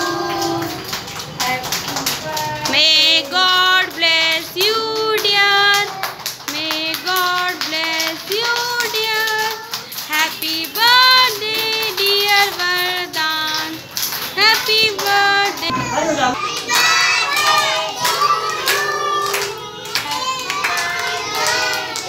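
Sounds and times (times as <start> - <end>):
children singing in chorus: 0.0 - 0.9, 14.6 - 22.0
woman singing: 0.0 - 15.9.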